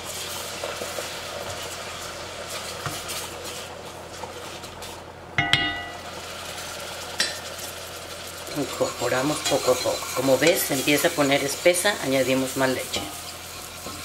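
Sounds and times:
short ringing clink: 5.4s - 6.0s
wooden spoon scraping pot: 8.5s - 14.0s.

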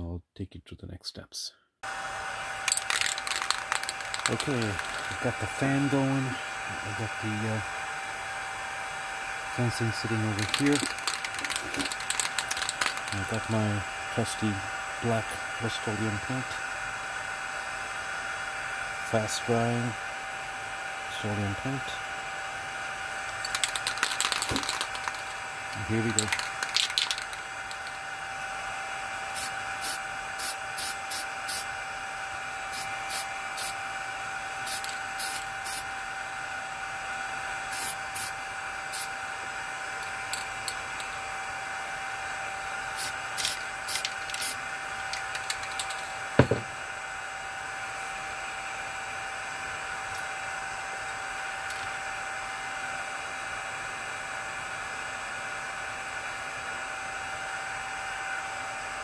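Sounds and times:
fan whirring with hum: 1.8s - 59.0s
aerosol spray can puffs: 2.6s - 5.3s, 10.3s - 13.6s, 23.3s - 28.0s, 29.3s - 31.7s, 32.7s - 33.8s, 34.6s - 35.9s, 37.7s - 39.1s, 42.9s - 46.7s
sharp knock: 46.4s - 46.7s.

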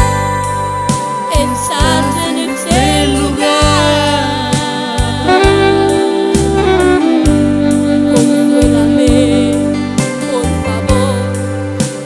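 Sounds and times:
bass line: 0.0s - 12.0s
christian song with held chords: 0.0s - 12.0s
wavering melodic line: 0.1s - 11.2s.

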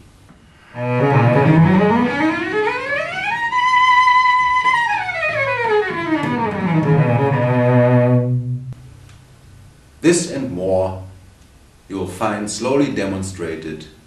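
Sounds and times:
bowed cello scale: 0.5s - 8.8s.

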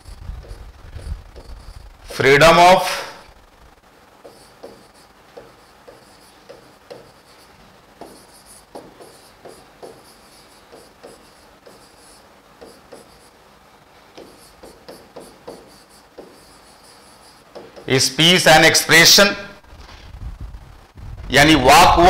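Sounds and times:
chalk writing on a blackboard: 0.4s - 2.2s, 4.2s - 13.4s, 14.1s - 18.0s.

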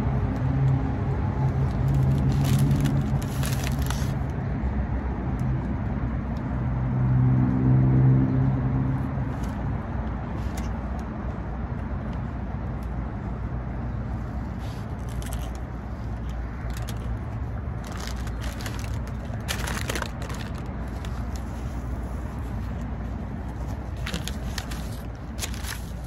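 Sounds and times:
taco shell crunching: 1.4s - 4.3s, 14.7s - 26.0s
low background rumble: 8.9s - 26.0s.

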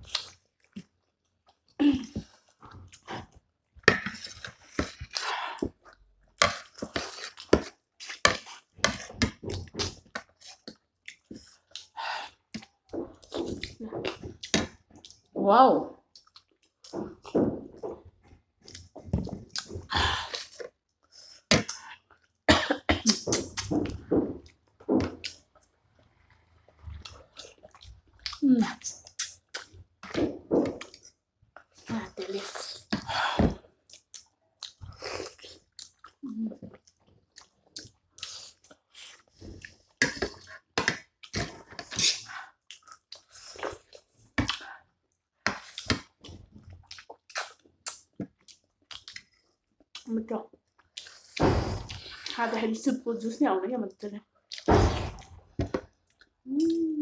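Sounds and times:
wet chewing: 16.1s - 22.4s, 26.7s - 33.2s, 33.8s - 44.8s, 45.5s - 52.4s.

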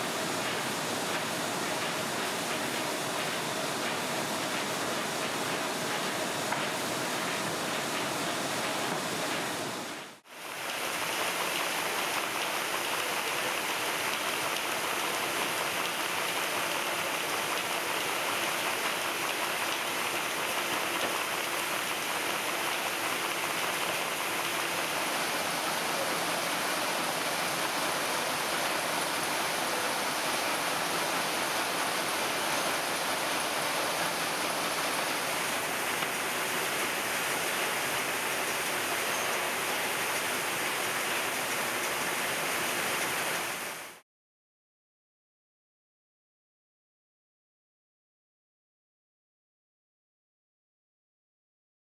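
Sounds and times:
paper machines running: 0.0s - 43.8s.

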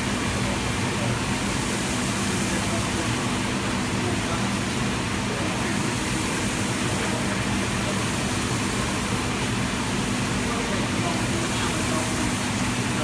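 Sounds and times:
water pouring into metal tank: 0.0s - 13.0s.

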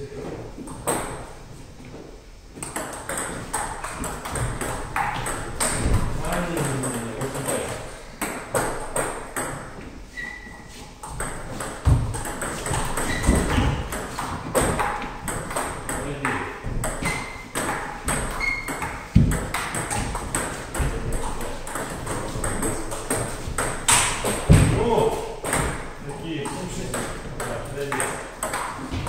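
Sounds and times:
heavy thuds: 19.1s - 20.2s.

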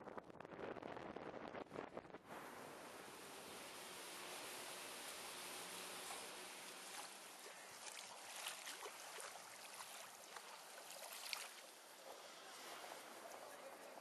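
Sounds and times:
river water lapping: 3.0s - 14.0s
soft splashes: 5.1s - 13.9s.

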